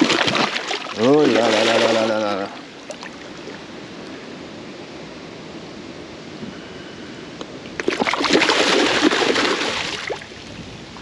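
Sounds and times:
fish thrashing and splashing: 0:00.0 - 0:02.2, 0:07.8 - 0:10.2
water lapping: 0:00.0 - 0:03.6.

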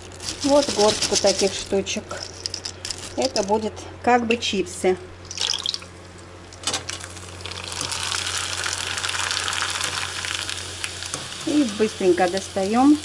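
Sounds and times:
snacks sizzling in hot oil: 0:05.3 - 0:06.0, 0:06.6 - 0:13.0.

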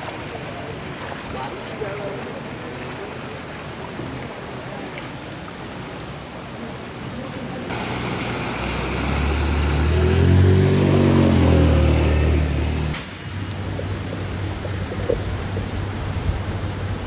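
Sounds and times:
floodwater sloshing: 0:00.0 - 0:07.0, 0:07.6 - 0:13.0
motor scooter engine hum: 0:07.7 - 0:13.0.

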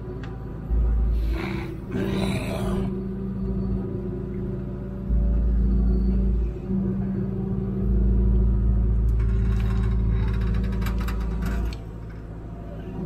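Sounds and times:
light clicks and rattles: 0:09.0 - 0:12.4.

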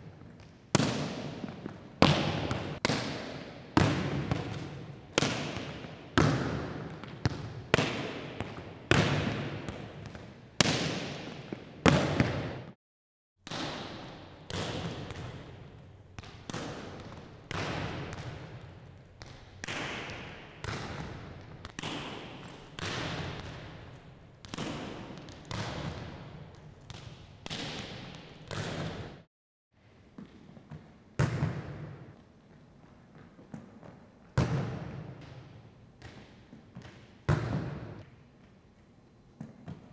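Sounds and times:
volleyball thuds echoing: 0:00.8 - 0:12.8, 0:34.4 - 0:38.0.

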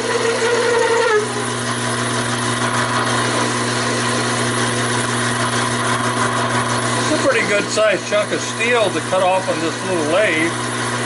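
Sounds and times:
lathe humming: 0:00.0 - 0:11.0.

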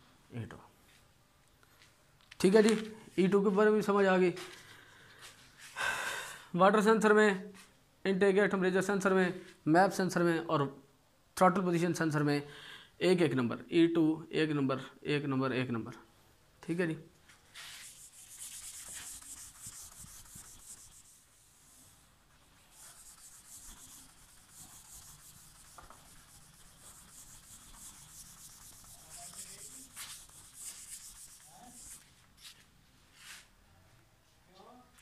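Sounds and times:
eraser rubbing on whiteboard: 0:17.5 - 0:32.6.

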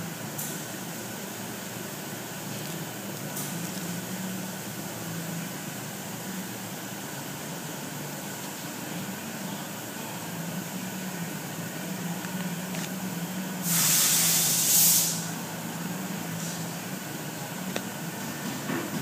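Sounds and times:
steady low hum: 0:00.0 - 0:19.0
hissing spray burst: 0:13.6 - 0:15.3.

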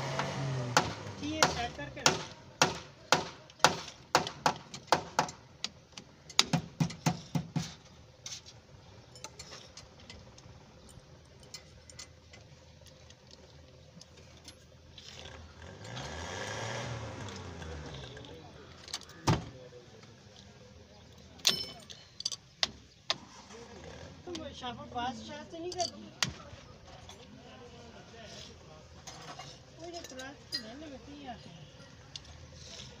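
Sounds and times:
passing vehicle: 0:00.0 - 0:02.3, 0:15.2 - 0:19.2.

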